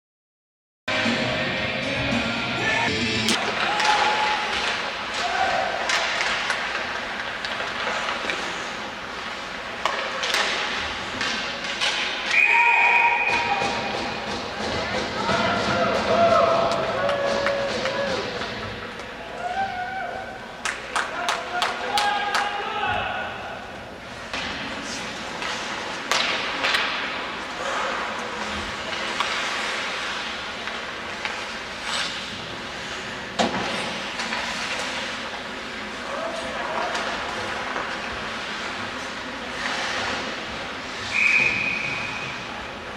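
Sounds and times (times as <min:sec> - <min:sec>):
crowd and arena noise: 0:00.9 - 0:42.9
skates scraping on ice: 0:03.3 - 0:12.3, 0:24.1 - 0:42.9
hockey sticks and puck clacking: 0:03.3 - 0:19.8, 0:20.6 - 0:22.8, 0:24.1 - 0:42.9
referee's whistle blast: 0:41.1 - 0:42.2.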